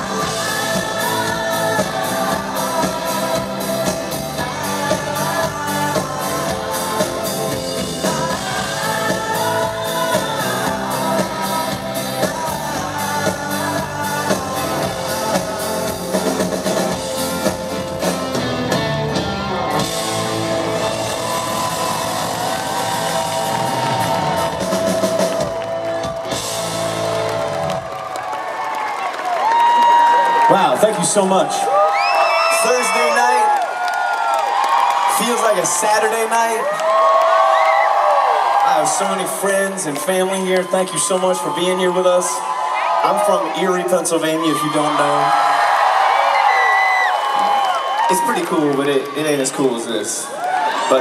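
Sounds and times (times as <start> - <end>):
man singing: 0.0 - 16.9
live rock band playing: 0.0 - 28.0.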